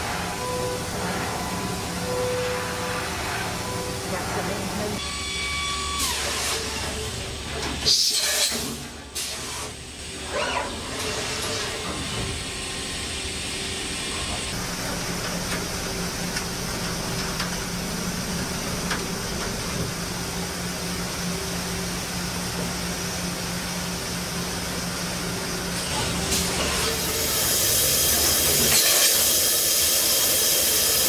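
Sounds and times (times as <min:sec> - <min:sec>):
machine drilling hiss: 0:27.0 - 0:31.0.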